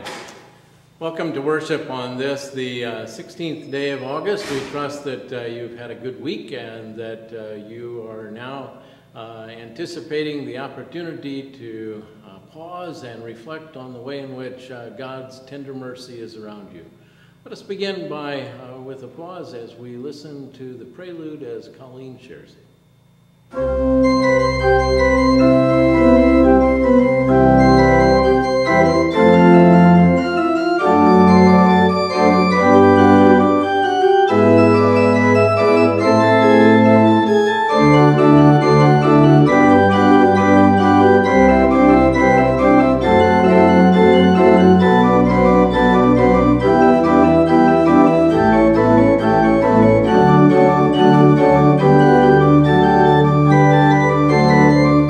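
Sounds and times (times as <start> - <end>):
pipe organ playing chords: 0.0 - 12.5, 23.5 - 55.0.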